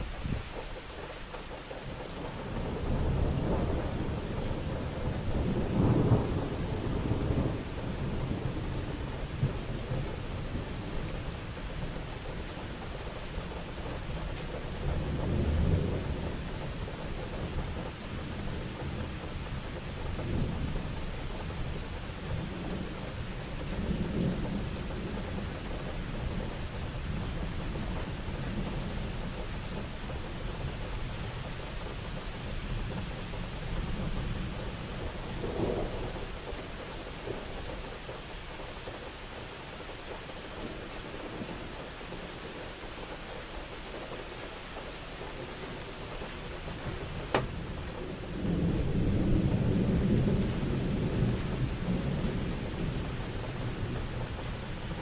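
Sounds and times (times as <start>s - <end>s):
steady rain: 0.0s - 55.0s
thunder rumbling: 2.4s - 11.0s, 32.1s - 37.5s, 46.3s - 55.0s.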